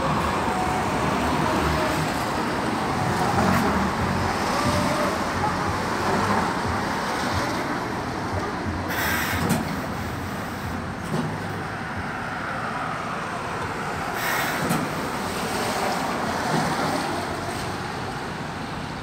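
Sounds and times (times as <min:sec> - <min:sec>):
steam hissing: 0:08.9 - 0:10.9, 0:14.2 - 0:16.9.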